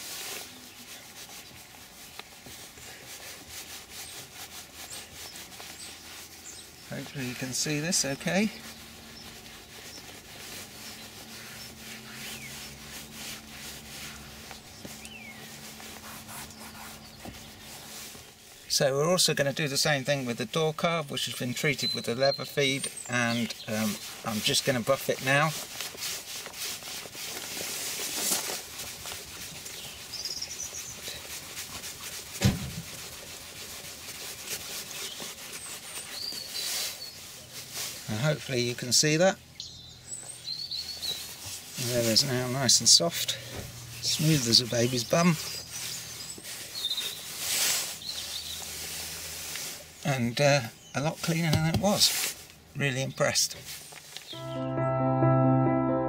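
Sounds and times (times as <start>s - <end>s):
cloth rubbing leather: 0.0s - 39.3s, 40.2s - 52.6s
thump: 32.4s - 32.8s.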